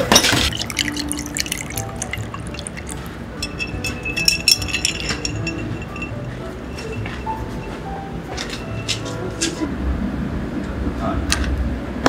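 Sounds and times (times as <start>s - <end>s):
spoon stirring ice clinking: 0.1s - 7.8s
liquid pouring over ice: 0.2s - 6.2s
ice clicking against glass: 0.2s - 6.9s.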